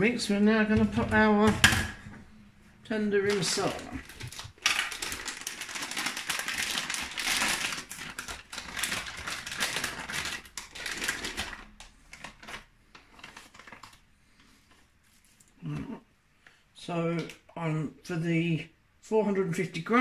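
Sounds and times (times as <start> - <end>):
plastic packet crinkling: 3.2 - 15.5.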